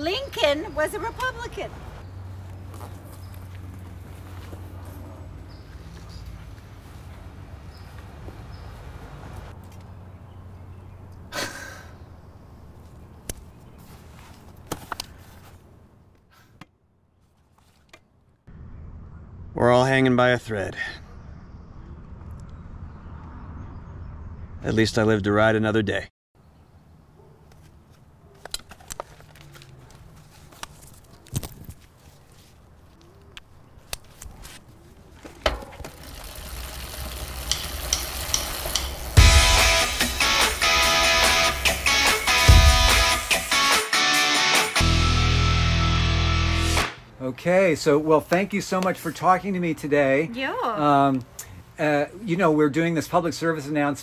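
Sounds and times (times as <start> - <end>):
bicycle helmet clicks and rustles: 14.2 - 15.6, 27.5 - 39.2.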